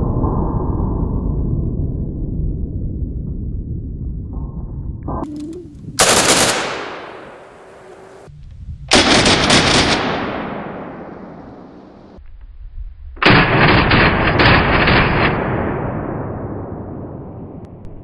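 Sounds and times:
rifle shots with echo: 0:06.0 - 0:08.3, 0:08.9 - 0:12.2, 0:13.2 - 0:16.9.

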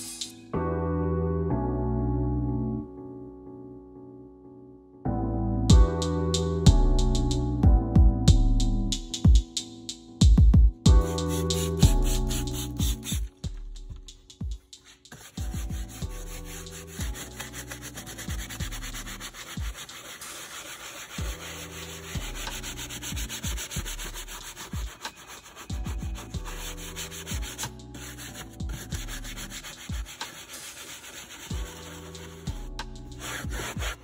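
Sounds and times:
background music with bass line: 0:05.1 - 0:30.4, 0:31.4 - 0:34.0
hand brush scrubbing plastic: 0:14.8 - 0:32.5, 0:33.1 - 0:34.0.

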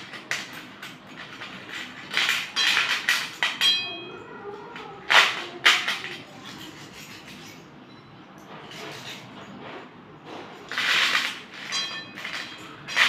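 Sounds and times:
pencils clattering together: 0:00.0 - 0:04.0, 0:04.7 - 0:07.7, 0:08.4 - 0:09.5, 0:10.3 - 0:13.0
pencils knocking on steel plate: 0:00.0 - 0:04.1, 0:04.7 - 0:07.6, 0:10.3 - 0:13.0.

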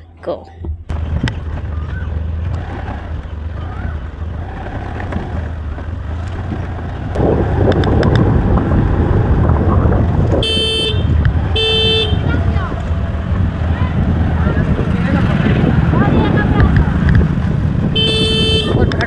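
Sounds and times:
wind and road noise: 0:00.0 - 0:19.0
motor scooter running: 0:00.9 - 0:19.0
vehicle horn honking: 0:10.4 - 0:12.5, 0:17.9 - 0:19.0.

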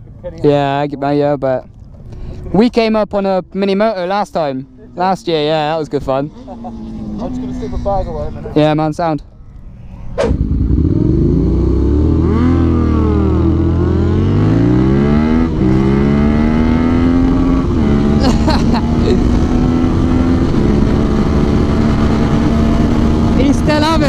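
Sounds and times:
motorcycle engine revving: 0:09.3 - 0:24.0.

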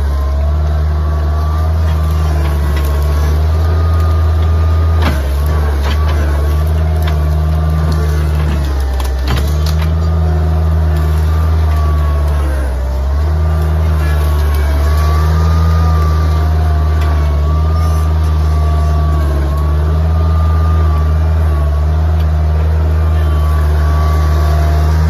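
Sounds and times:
loader engine running: 0:00.0 - 0:25.0
thin wavering whine: 0:05.5 - 0:25.0.

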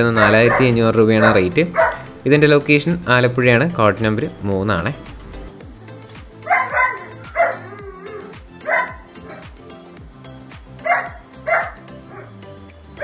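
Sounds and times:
puppies barking: 0:00.0 - 0:03.0, 0:06.4 - 0:09.6, 0:10.8 - 0:12.4
background music with beat: 0:00.0 - 0:13.0.

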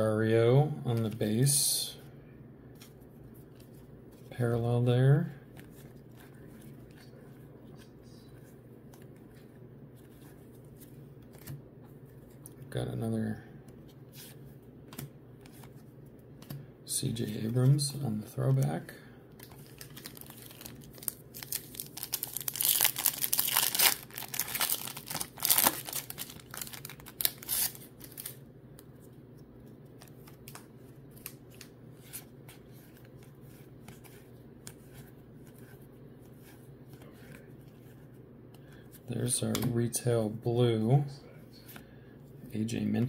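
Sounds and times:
wrapper tearing and crinkling: 0:19.4 - 0:28.4.

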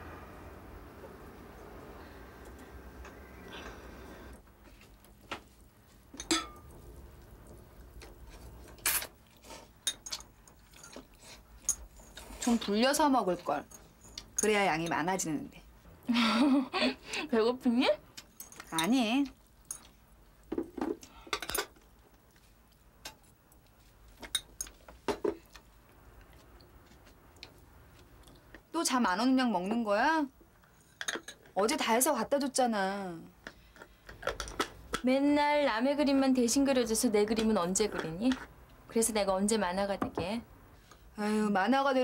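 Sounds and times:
dishes and utensils clinking: 0:06.1 - 0:06.7.

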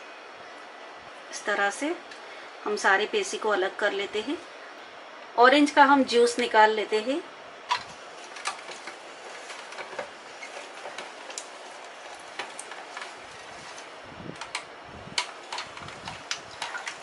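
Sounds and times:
hand-cranked juicer churning: 0:07.8 - 0:14.6, 0:15.2 - 0:17.0.

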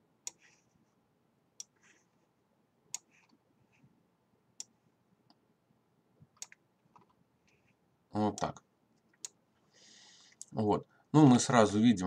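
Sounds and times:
computer mouse clicking: 0:00.2 - 0:00.5, 0:01.6 - 0:01.8, 0:02.9 - 0:03.4, 0:04.6 - 0:05.4, 0:06.3 - 0:07.6, 0:08.3 - 0:09.4.

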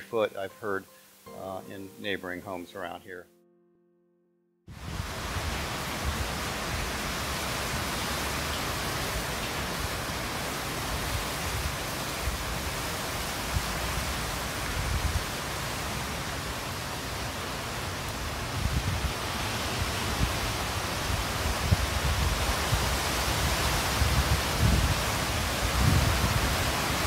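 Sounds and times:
wind and rain rushing: 0:04.7 - 0:27.0
wind gusts buffeting microphone: 0:04.8 - 0:08.0, 0:11.0 - 0:16.0, 0:18.2 - 0:27.0.

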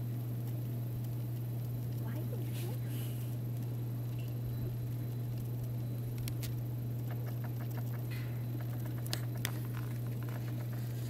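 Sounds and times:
light clicks and crackles: 0:00.0 - 0:11.0
steady low hum: 0:00.0 - 0:11.0
sharp ticks: 0:03.6 - 0:10.9.

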